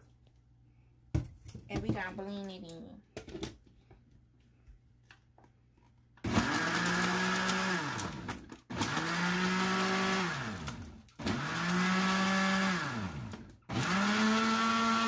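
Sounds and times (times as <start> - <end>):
blender motor whining: 6.2 - 15.0.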